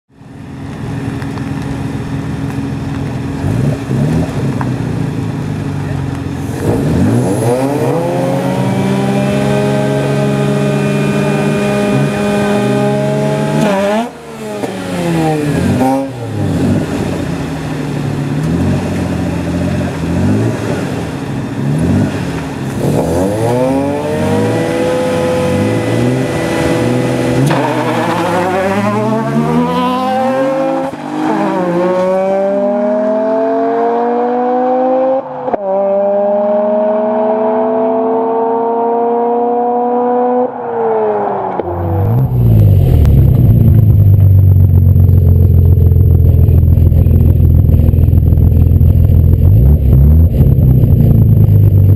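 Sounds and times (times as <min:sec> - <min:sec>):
car engines revving and accelerating: 0:00.2 - 0:51.9.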